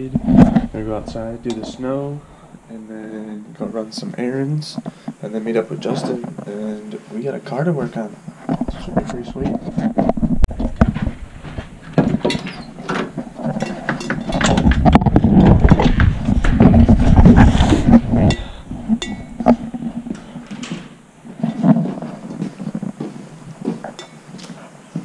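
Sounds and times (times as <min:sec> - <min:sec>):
camera handling rubbing and thumps: 0:08.4 - 0:18.3
clicks and knocks: 0:11.9 - 0:20.9.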